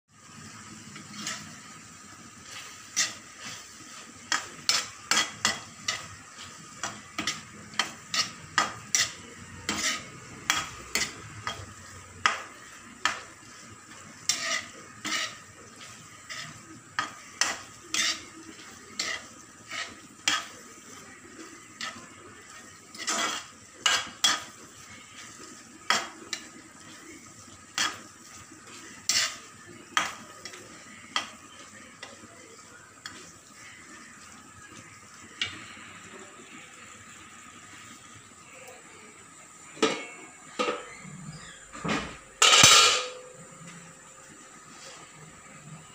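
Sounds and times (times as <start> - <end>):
faint sizzle of frying: 0.1 - 45.9
metal spatula scraping a pan: 0.8 - 32.2, 42.4 - 43.4.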